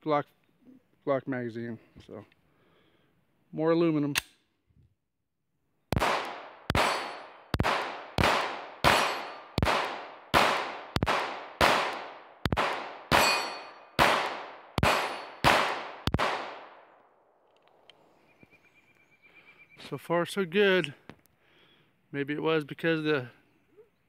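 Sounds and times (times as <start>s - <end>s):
pistol shots ringing: 5.9s - 16.9s
steel plate targets clanging: 6.8s - 7.4s, 8.8s - 9.6s, 13.1s - 14.0s, 14.8s - 15.4s.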